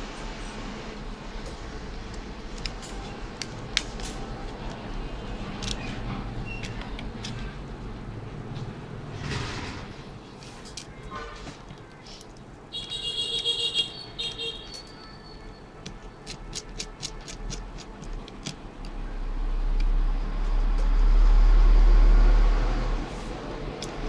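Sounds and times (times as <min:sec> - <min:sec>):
screwdriver clicks: 0:05.6 - 0:07.4.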